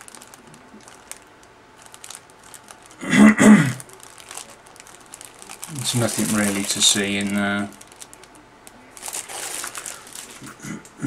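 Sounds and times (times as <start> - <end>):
plastic bag crinkling: 0.0 - 10.6
man clearing his throat: 3.0 - 3.8.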